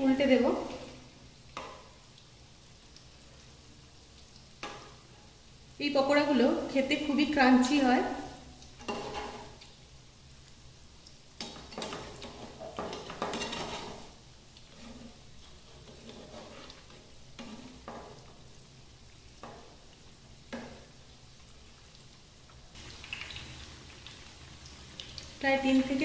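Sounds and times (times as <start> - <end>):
food sizzling in hot oil: 0.0 - 26.0.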